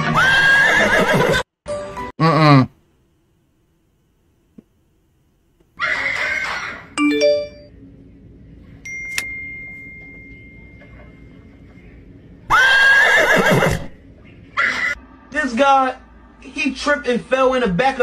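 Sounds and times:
horse whinnying: 0.0s - 1.4s, 12.5s - 14.0s.

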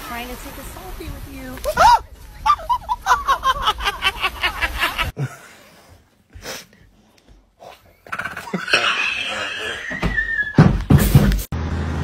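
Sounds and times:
person laughing: 1.8s - 5.4s, 8.1s - 10.0s.

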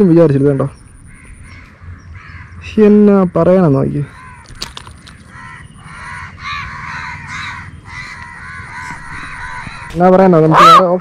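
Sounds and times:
animal calling: 4.0s - 11.0s.

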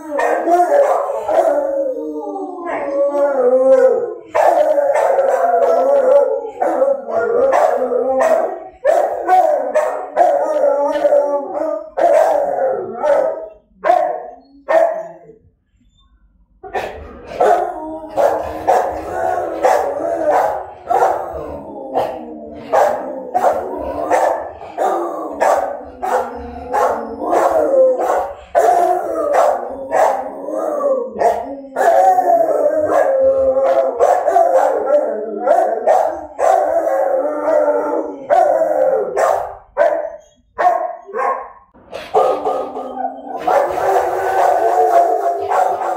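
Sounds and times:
dogs howling: 0.0s - 15.4s, 16.6s - 45.9s
dog barking: 0.2s - 1.6s, 4.4s - 5.9s, 6.5s - 11.0s, 11.8s - 15.2s, 16.7s - 21.5s, 22.6s - 30.4s, 31.2s - 32.1s, 32.9s - 37.0s, 38.2s - 45.9s.

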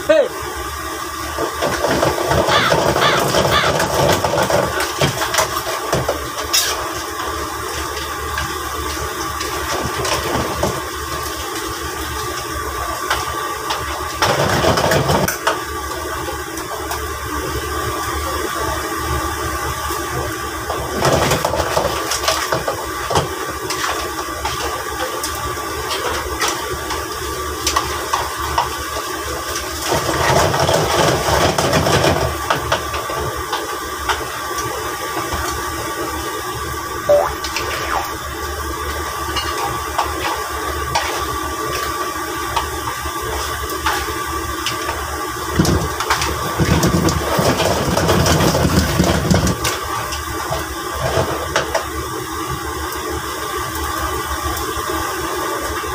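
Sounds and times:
food sizzling in a wok: 0.3s - 2.4s, 5.5s - 21.0s, 21.6s - 46.8s, 49.5s - 55.9s
thin hum: 37.1s - 38.4s.

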